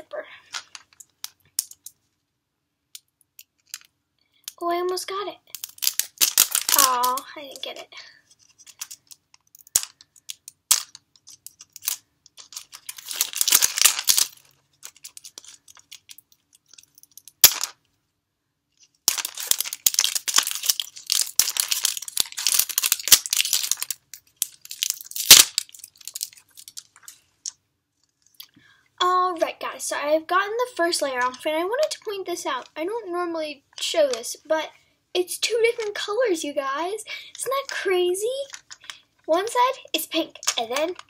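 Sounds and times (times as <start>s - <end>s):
plastic wrapping crinkling: 5.5s - 7.3s, 8.3s - 17.6s, 18.8s - 27.3s, 38.4s - 39.0s.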